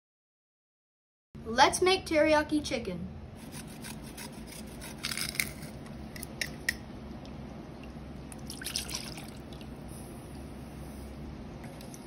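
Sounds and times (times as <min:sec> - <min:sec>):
ginger scraping on metal grater: 0:03.4 - 0:05.8
sauce pouring and splashing: 0:07.1 - 0:09.8.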